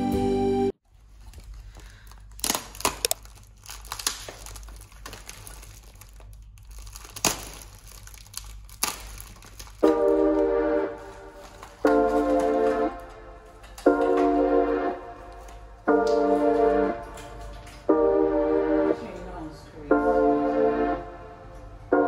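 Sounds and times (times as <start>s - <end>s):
low steady hum: 0.0s - 22.0s
crinkling and rustling: 0.8s - 14.5s, 15.2s - 17.9s
sharp clicks and crackles: 1.3s - 10.2s.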